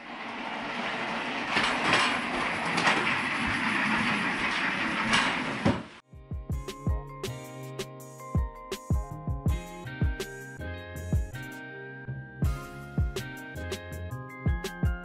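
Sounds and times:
clothes rail rolling on casters: 0.0 - 6.0.

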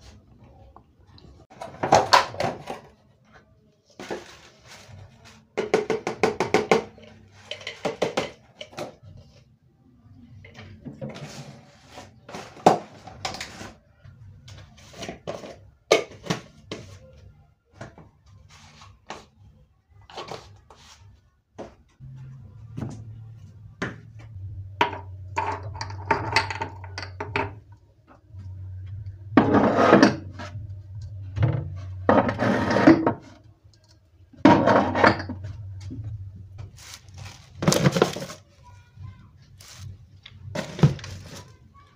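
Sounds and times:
scraping and rustling: 3.9 - 5.5, 36.6 - 38.8, 39.5 - 41.8
dishes and utensils clinking: 5.6 - 8.9
low steady hum: 22.0 - 41.3.

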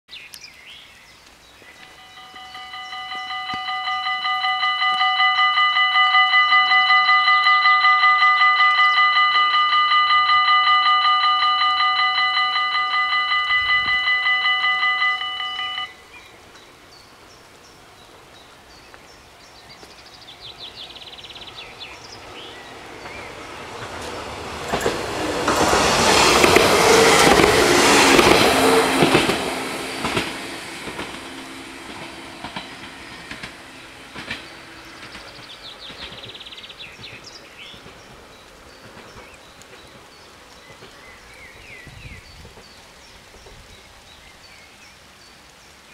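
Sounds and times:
train passing: 1.6 - 44.2
train wheels clattering: 22.2 - 41.2.

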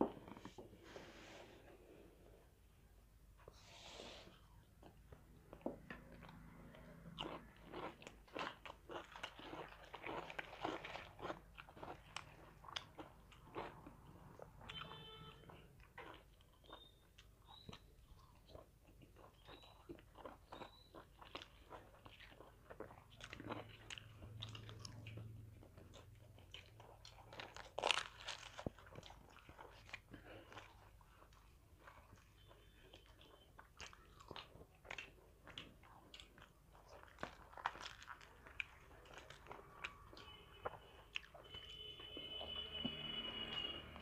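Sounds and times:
chewing and biting: 4.4 - 43.6.

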